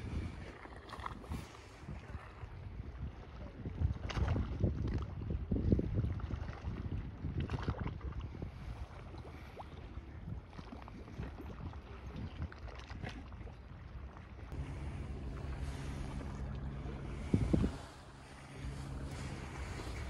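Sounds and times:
wind buffeting microphone: 0:00.0 - 0:12.5, 0:14.5 - 0:20.0
small waves lapping against seawall: 0:00.0 - 0:20.0
steady low hum: 0:14.5 - 0:20.0.

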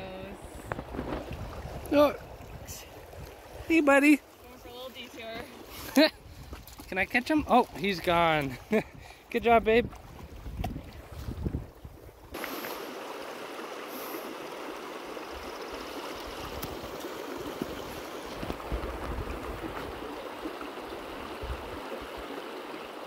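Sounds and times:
river water rushing: 0:12.3 - 0:23.0.

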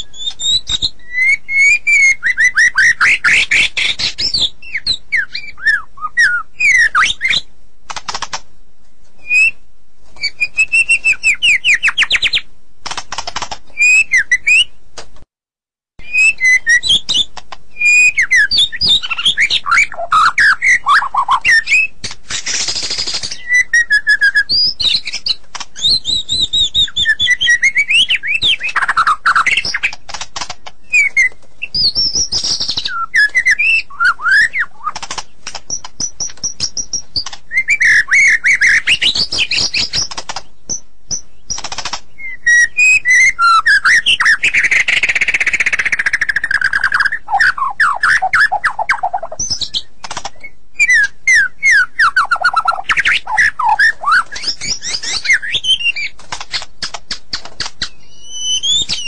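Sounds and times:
bird whistling song: 0:00.0 - 0:07.5, 0:09.2 - 0:09.6, 0:10.2 - 0:12.5, 0:13.7 - 0:14.8, 0:16.0 - 0:30.0, 0:30.8 - 0:35.0, 0:35.6 - 0:59.0
bird harsh chattering: 0:17.8 - 0:40.5, 0:41.1 - 0:59.0.

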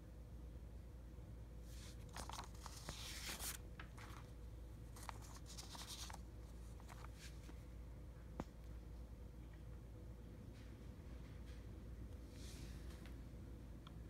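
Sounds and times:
paper sheets rustling: 0:01.7 - 0:07.5
paper edges clicking: 0:02.0 - 0:04.3, 0:04.9 - 0:06.2.

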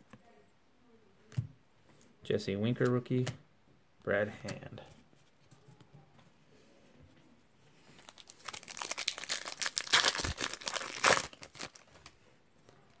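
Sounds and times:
foil wrapper crinkling and tearing: 0:08.0 - 0:12.2.

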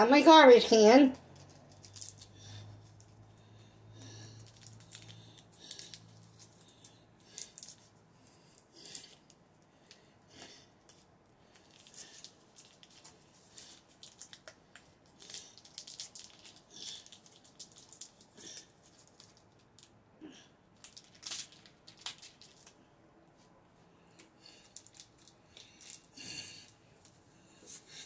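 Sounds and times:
foil wrapper crinkling: 0:01.3 - 0:03.1, 0:04.4 - 0:07.9, 0:10.9 - 0:19.9, 0:20.8 - 0:22.8, 0:24.6 - 0:26.6.

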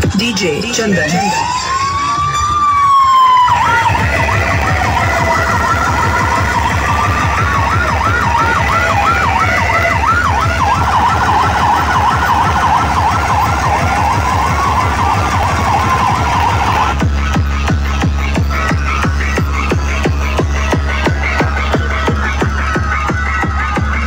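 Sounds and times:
dance track: 0:00.0 - 0:24.0
siren sound effect: 0:01.0 - 0:21.8.

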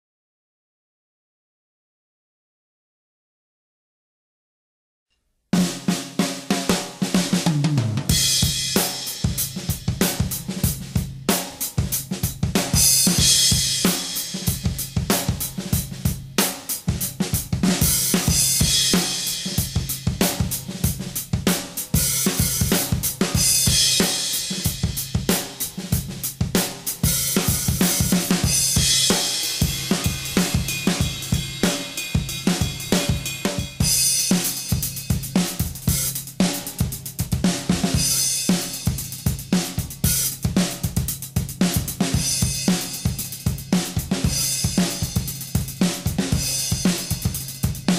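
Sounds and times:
drum kit groove: 0:05.6 - 0:47.9
crash cymbals: 0:27.1 - 0:35.2.

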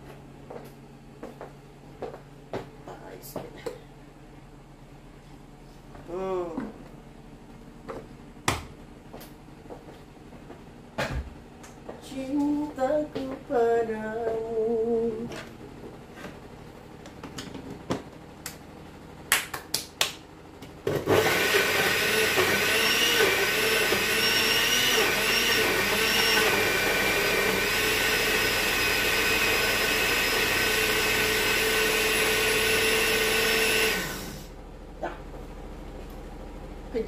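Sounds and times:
electric blender running: 0:20.9 - 0:34.6.

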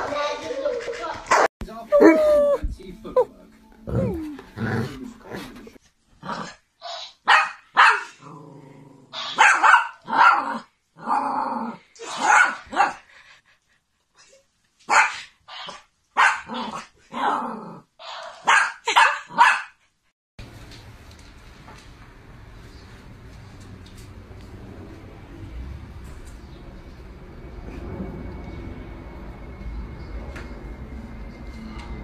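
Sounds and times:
dog growling: 0:01.9 - 0:02.6, 0:03.8 - 0:06.6, 0:08.2 - 0:09.2, 0:16.5 - 0:18.0
small dog barking: 0:07.2 - 0:08.2, 0:09.2 - 0:10.6, 0:12.1 - 0:13.0, 0:14.9 - 0:15.3, 0:16.2 - 0:16.8, 0:18.3 - 0:19.8.

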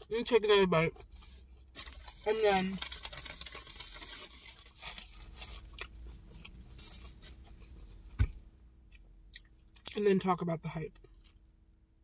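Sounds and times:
low thump: 0:08.2 - 0:08.4.

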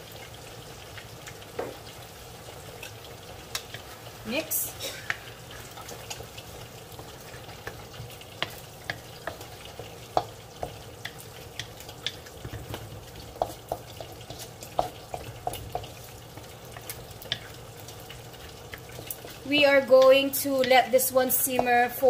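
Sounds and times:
food sizzling in oil: 0:00.0 - 0:22.0
wooden spatula knocking in wok: 0:01.5 - 0:01.9, 0:06.9 - 0:17.6, 0:21.5 - 0:22.0.

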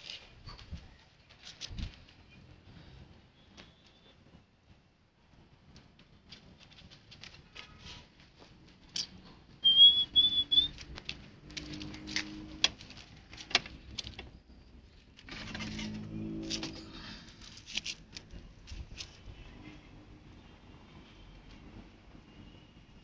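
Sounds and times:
light clicks and pattering: 0:05.6 - 0:09.3.

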